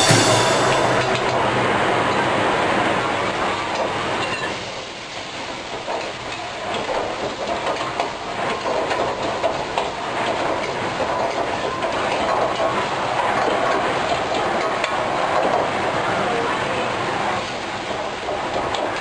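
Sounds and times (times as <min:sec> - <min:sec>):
food sizzling: 0:00.0 - 0:07.2
gas burner hissing: 0:00.0 - 0:19.0.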